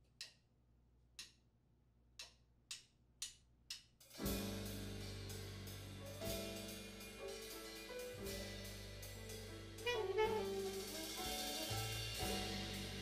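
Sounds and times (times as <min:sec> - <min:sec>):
jazz quartet playing: 0:04.2 - 0:13.0.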